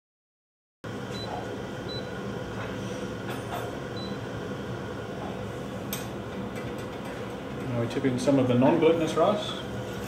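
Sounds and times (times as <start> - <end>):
steady low hum: 0.9 - 10.0
cooktop beep: 1.1 - 2.2, 4.0 - 4.2.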